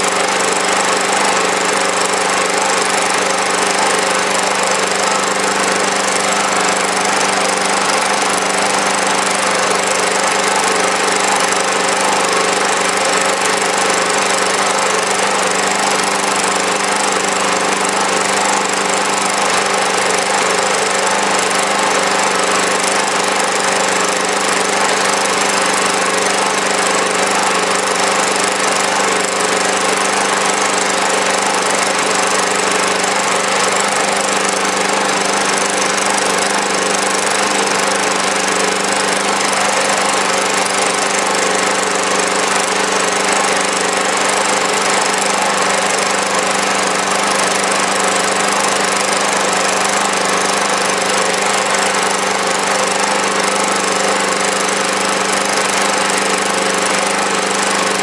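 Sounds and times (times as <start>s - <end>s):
small engine running steadily: 0.0s - 58.0s.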